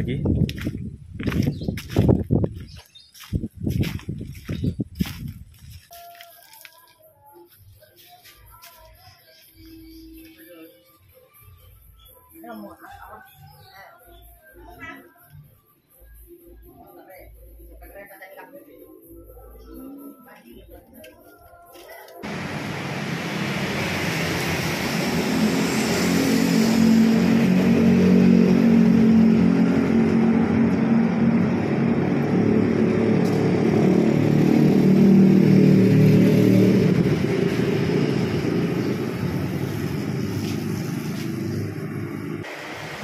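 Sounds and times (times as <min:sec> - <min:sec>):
car engines passing: 0:22.2 - 0:43.0
motorcycle engines passing: 0:22.2 - 0:43.0.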